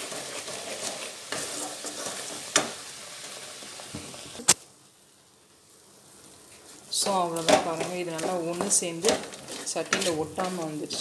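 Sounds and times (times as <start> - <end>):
wooden spatula scraping pan: 0.0 - 4.4, 6.6 - 11.0
filling bubbling and sizzling: 0.0 - 11.0.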